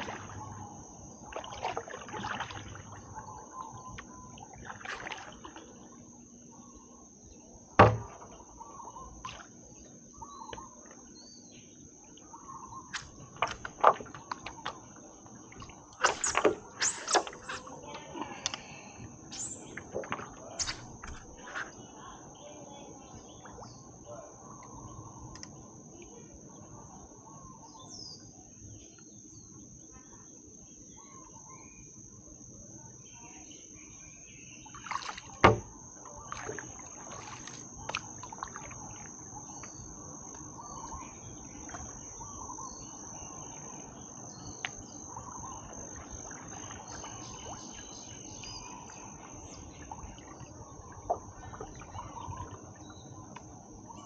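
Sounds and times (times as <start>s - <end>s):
high insect drone: 0.0s - 54.0s
bird chirps: 9.8s - 13.4s, 16.0s - 25.4s.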